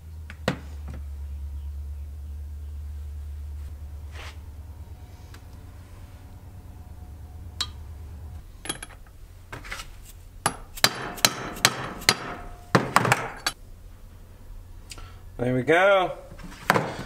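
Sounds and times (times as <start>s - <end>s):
mallet banging on metal: 10.4s - 13.6s.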